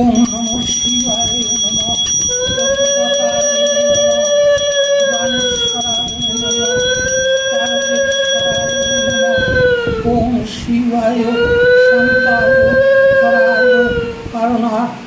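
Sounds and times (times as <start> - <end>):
bell rung with quick strikes: 0.0 - 9.3
long held tones: 0.0 - 10.3.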